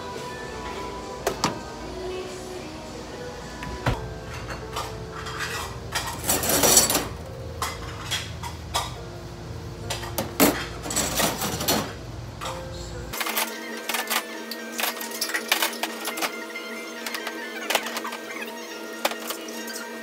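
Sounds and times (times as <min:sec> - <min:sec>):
metal tongs clattering: 0:04.3 - 0:09.0, 0:09.9 - 0:12.6.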